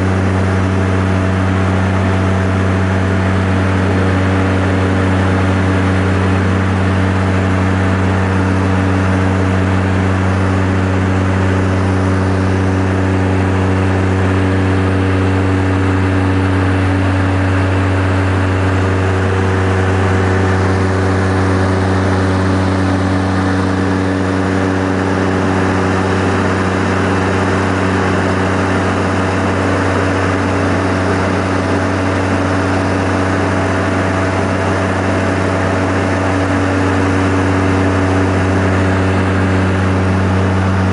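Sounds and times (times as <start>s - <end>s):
propeller engines droning: 0.0s - 40.9s.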